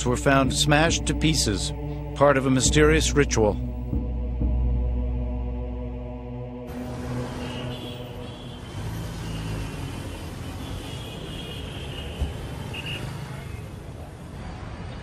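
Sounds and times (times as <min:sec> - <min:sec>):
hum of cars and engines: 0:03.7 - 0:15.0.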